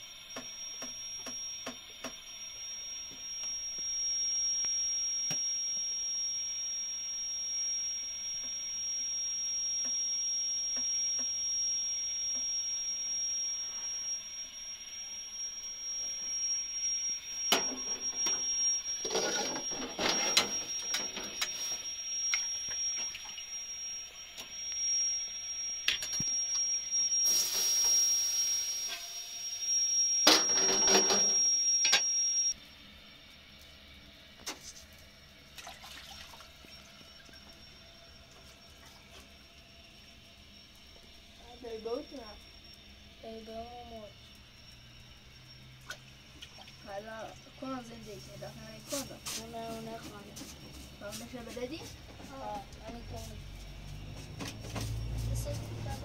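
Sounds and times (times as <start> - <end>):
high-pitched whine: 0.0 - 35.5, 36.3 - 56.0
hissing burst: 27.2 - 29.5.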